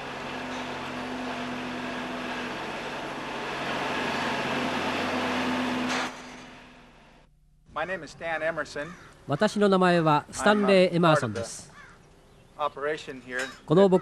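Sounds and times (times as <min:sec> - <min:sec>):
machine humming: 0:00.0 - 0:07.7.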